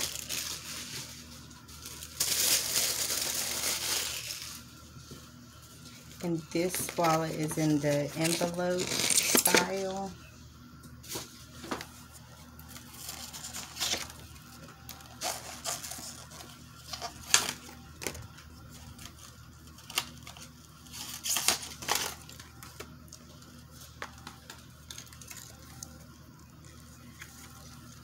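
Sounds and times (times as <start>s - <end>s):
paper stuffing rustling: 0.0s - 5.1s, 5.7s - 10.0s, 11.0s - 17.6s.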